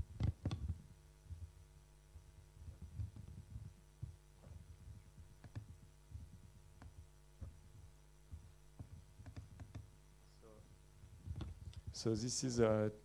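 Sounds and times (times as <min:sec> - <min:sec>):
soft low thumps: 0:00.0 - 0:09.9, 0:10.7 - 0:12.0
steady low hum: 0:00.0 - 0:13.0
laptop keys tapping: 0:00.1 - 0:01.5, 0:02.6 - 0:09.9, 0:11.2 - 0:12.0.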